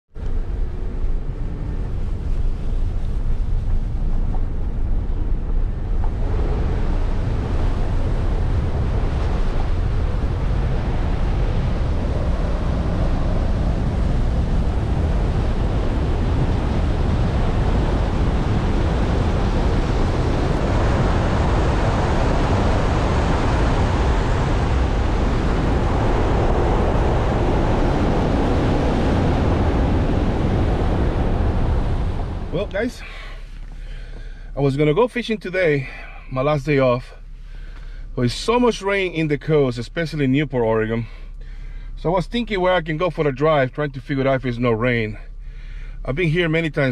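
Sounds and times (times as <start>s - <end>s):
low rumble on microphone: 0.1s - 46.9s
wind and tyres on wet road: 0.2s - 35.3s.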